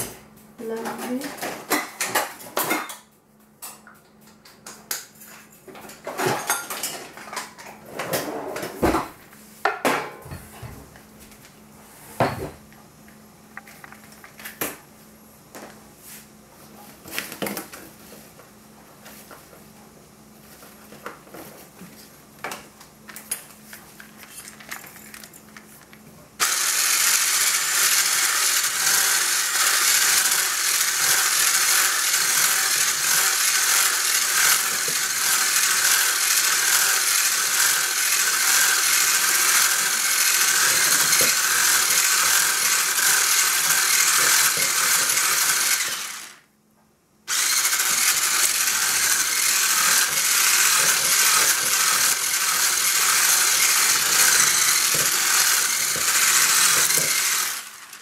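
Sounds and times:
kitchenware clinking: 0:06.0 - 0:07.7
immersion blender whirring: 0:26.4 - 0:46.4, 0:47.3 - 0:58.0.

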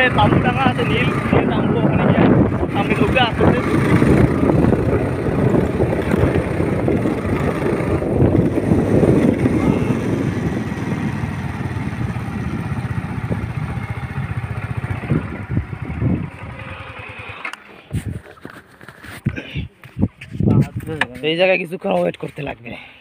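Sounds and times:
wind rumble on microphone: 0:00.0 - 0:16.9, 0:19.9 - 0:21.0
motorcycle engine: 0:00.0 - 0:18.7.

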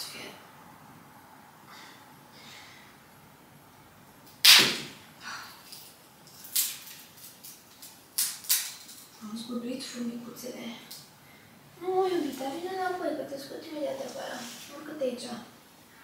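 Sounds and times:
branch cracking: 0:05.7 - 0:09.0
twigs clicking and knocking: 0:05.7 - 0:09.2.

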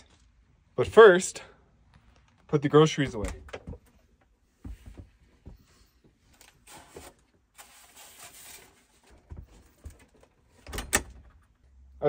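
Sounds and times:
rustling of bags and packaging: 0:04.8 - 0:10.6.

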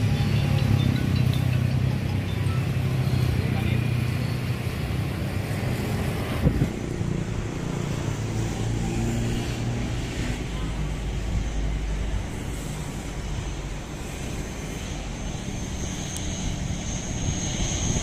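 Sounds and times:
motorbikes passing: 0:00.0 - 0:16.8
road traffic engine rumble: 0:00.0 - 0:18.0.

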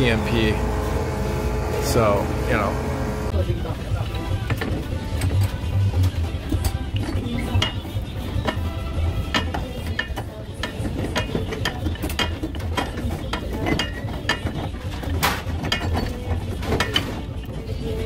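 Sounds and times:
steady low hum: 0:00.0 - 0:11.5.

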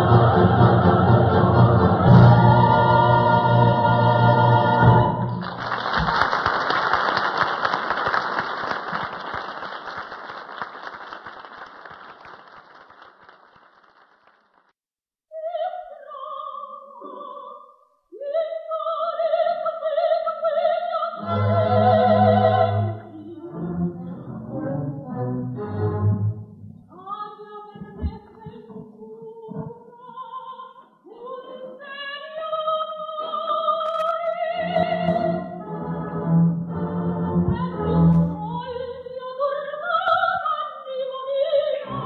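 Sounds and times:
opera chorus and orchestra: 0:00.0 - 0:05.5, 0:18.2 - 0:28.7, 0:31.2 - 0:42.0
audience applause: 0:05.4 - 0:14.7.

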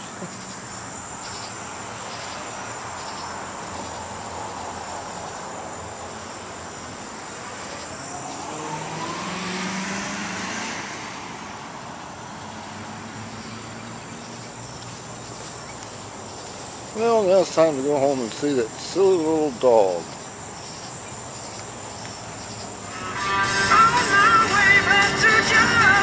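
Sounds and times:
crickets chirping: 0:00.0 - 0:26.0
vehicle passing with whine: 0:00.5 - 0:17.0.

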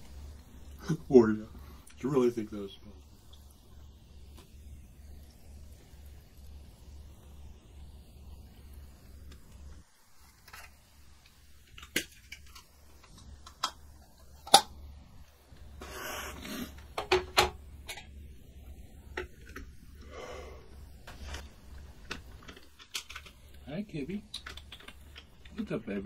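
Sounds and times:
low hum: 0:00.0 - 0:26.0
breathy rush of exhaling smoke: 0:00.1 - 0:02.0, 0:15.7 - 0:17.0, 0:18.6 - 0:22.0
small clicks and taps: 0:24.3 - 0:25.7.

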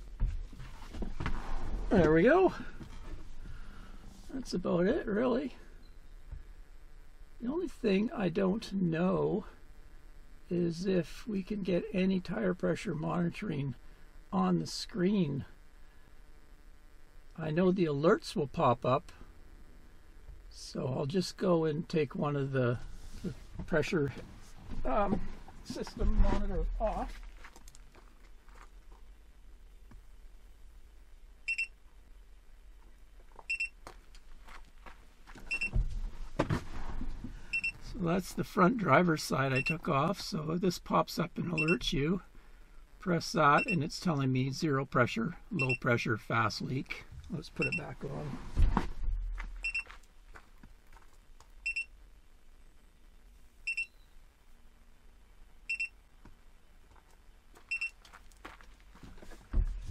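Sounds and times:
high-pitched double beep: 0:39.6 - 0:39.8, 0:41.6 - 0:41.8, 0:47.6 - 0:47.9.

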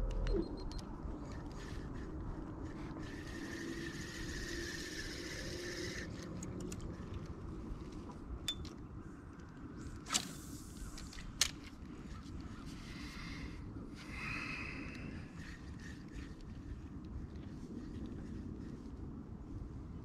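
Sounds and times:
fishing reel whirring: 0:01.3 - 0:07.0.

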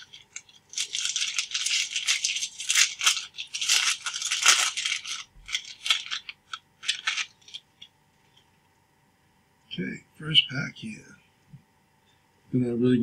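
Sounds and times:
foil wrapper crinkling and tearing: 0:00.0 - 0:07.9.

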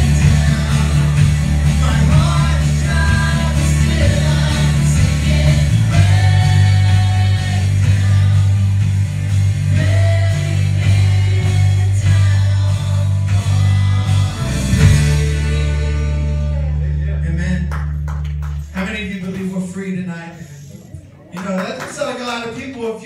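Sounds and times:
person singing: 0:00.0 - 0:08.7
electric guitar: 0:00.0 - 0:17.2
live rock band playing: 0:00.0 - 0:18.6
heavy steady bass: 0:00.0 - 0:19.7.

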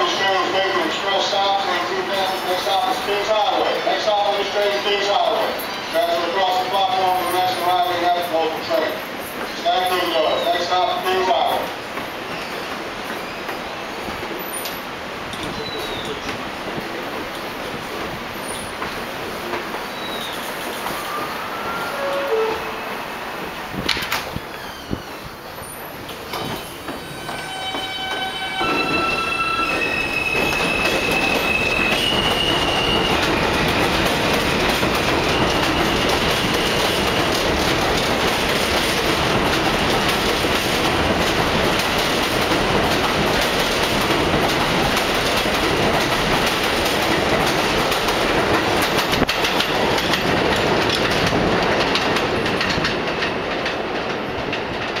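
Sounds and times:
wheels clattering over rail joints: 0:33.6 - 0:55.0.

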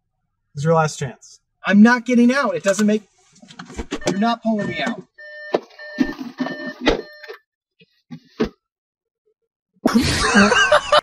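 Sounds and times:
car door warning chime beeping: 0:04.0 - 0:07.4.

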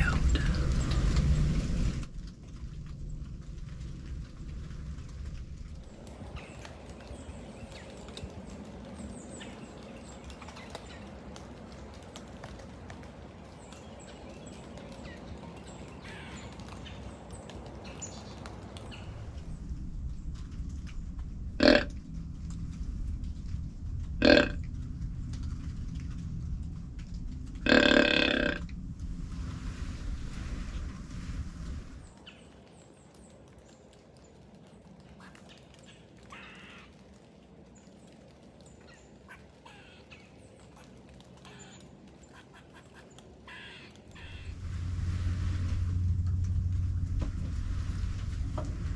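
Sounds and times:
faint rustles in woods: 0:00.0 - 0:48.9
low steady background noise: 0:00.0 - 0:48.9
deer grunt call: 0:21.6 - 0:21.9, 0:24.2 - 0:24.6, 0:27.6 - 0:28.6
harsh bird calls: 0:21.6 - 0:21.9, 0:24.2 - 0:24.6, 0:27.6 - 0:28.6, 0:41.5 - 0:44.6.

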